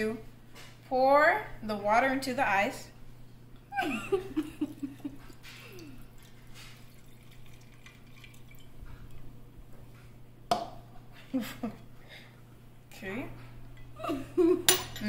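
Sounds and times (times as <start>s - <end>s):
water trickling onto ice: 4.4s - 8.8s.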